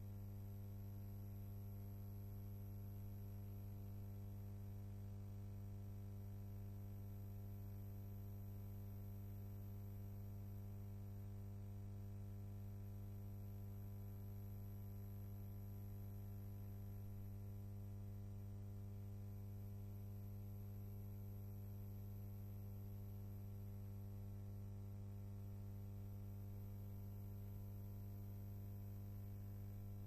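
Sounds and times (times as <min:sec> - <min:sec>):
low electrical hum: 0:26.3 - 0:30.0.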